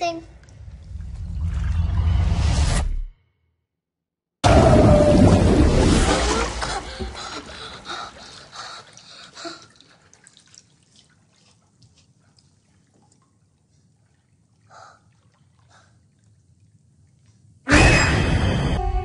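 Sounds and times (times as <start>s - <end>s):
water dripping and trickling: 0.3s - 1.6s, 6.0s - 17.6s
water sloshing: 5.1s - 17.6s.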